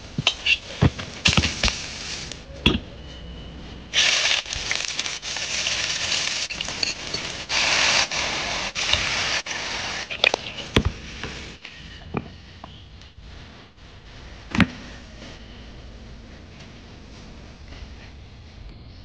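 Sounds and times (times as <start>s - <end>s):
metal ladle scraping a wok: 4.0s - 10.8s.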